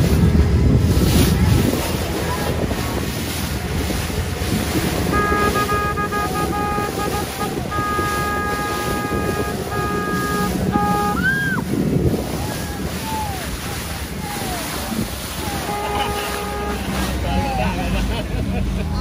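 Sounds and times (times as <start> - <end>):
wind buffeting microphone: 0.0 - 17.7
rushing wake water: 0.0 - 19.0
horn blasts: 5.0 - 11.6, 14.4 - 17.3.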